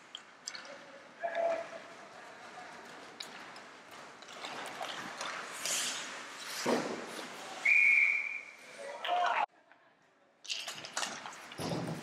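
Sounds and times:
hockey sticks and puck clacking: 0.0 - 7.5, 10.5 - 12.0
skate blades scraping ice: 1.4 - 7.7.

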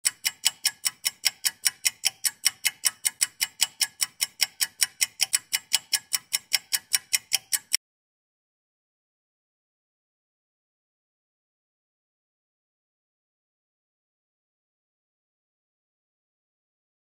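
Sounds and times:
fast clock-like ticking: 0.0 - 7.8.

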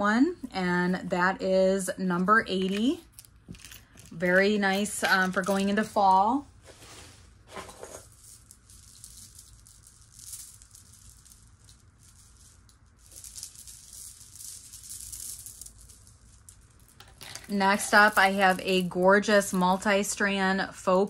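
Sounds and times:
rustling handling noise: 2.6 - 19.0.

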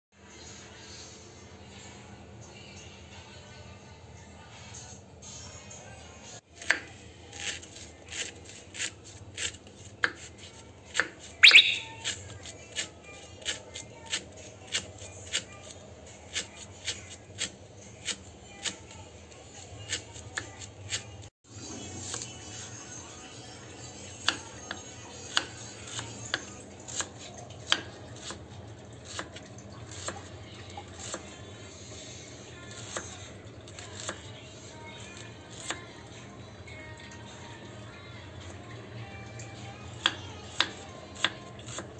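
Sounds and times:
knife slicing onion on wood: 6.5 - 19.0, 19.8 - 21.3, 24.2 - 30.3, 30.9 - 31.3, 32.7 - 34.3, 35.0 - 35.9, 39.9 - 41.9.

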